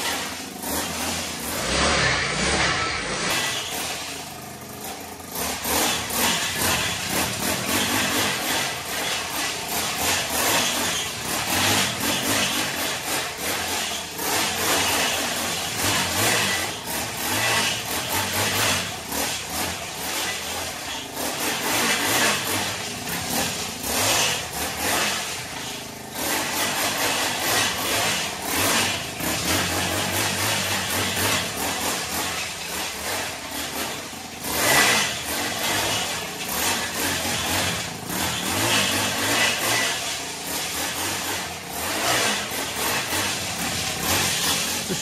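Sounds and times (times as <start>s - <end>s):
small kart engine revving: 0.0s - 45.0s.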